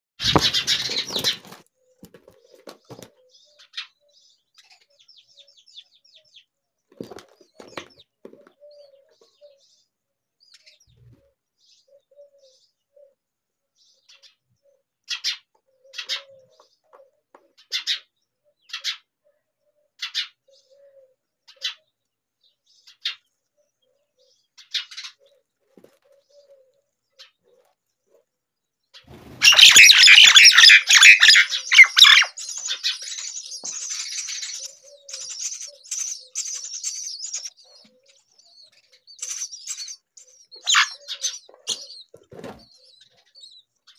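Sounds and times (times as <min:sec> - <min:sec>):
nestlings rasping begging calls: 0:00.2 - 0:01.4, 0:29.3 - 0:42.1
wing flapping: 0:00.2 - 0:03.0
soft bird chirps: 0:29.0 - 0:43.9.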